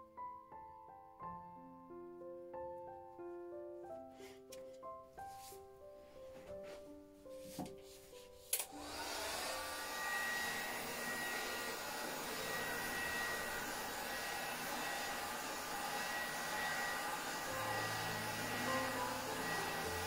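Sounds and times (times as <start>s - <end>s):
hot-air blower whining: 8.5s - 20.0s.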